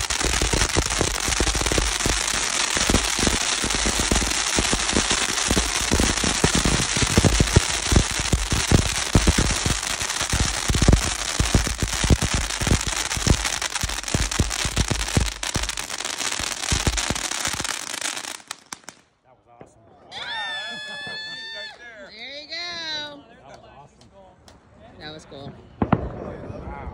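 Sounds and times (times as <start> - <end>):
firework fountains crackling: 0.0 - 19.0.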